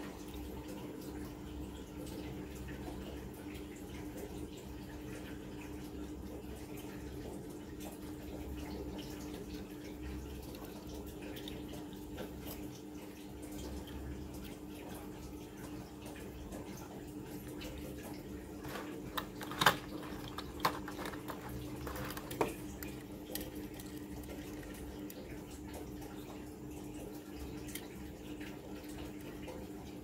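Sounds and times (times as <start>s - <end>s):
steady background hum: 0.0s - 30.0s
toy cars and plastic tray handled: 18.6s - 22.6s
sharp plastic clicks and crackles: 18.6s - 24.8s.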